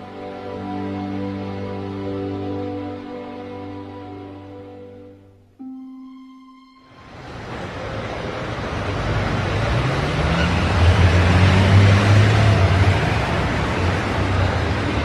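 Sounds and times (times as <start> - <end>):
road noise: 6.9 - 15.0
car engine: 7.0 - 15.0.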